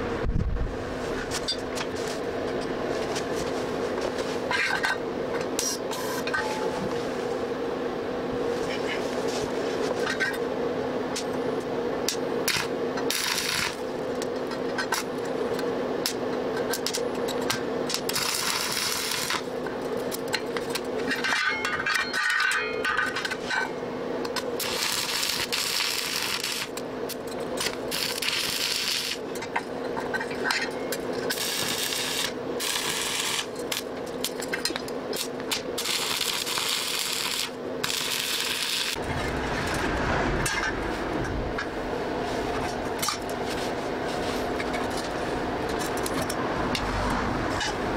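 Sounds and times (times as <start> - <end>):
steady low hum: 0.0 - 47.9
welding arc crackling: 12.1 - 21.4, 24.3 - 29.6, 30.9 - 41.8.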